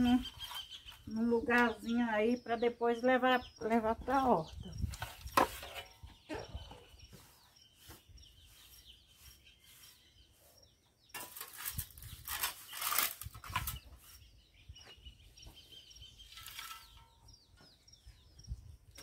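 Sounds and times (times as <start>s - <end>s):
faint high chirping: 0.0s - 19.0s
broom sweeping concrete floor: 6.9s - 14.3s.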